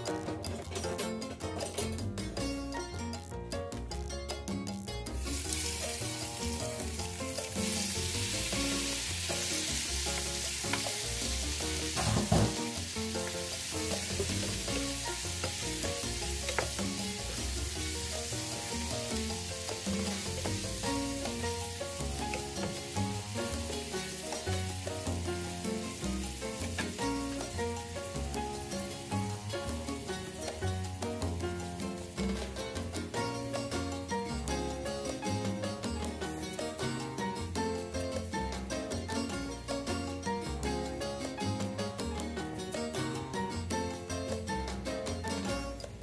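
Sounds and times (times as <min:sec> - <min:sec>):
shrimp sizzling in oil: 0:05.1 - 0:41.7.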